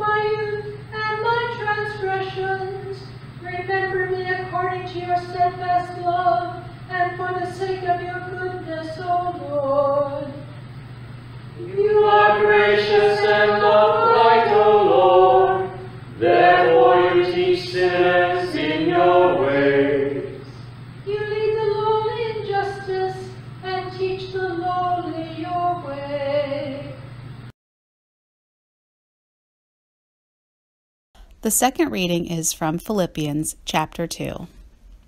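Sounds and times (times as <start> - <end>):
steady low hum: 0.0 - 27.5, 31.2 - 35.0
church singers chanting: 11.6 - 26.0.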